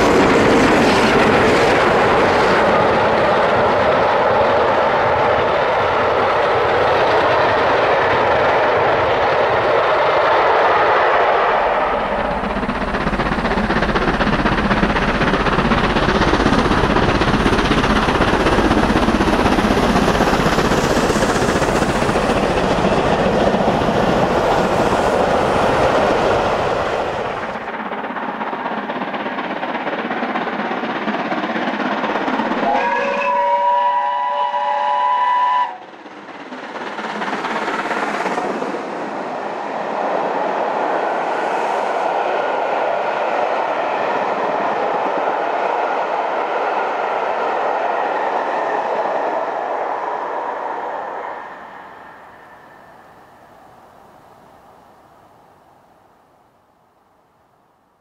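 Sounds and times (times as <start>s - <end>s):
steam locomotive exhaust: 9.4s - 54.4s
steam whistle: 32.6s - 35.8s.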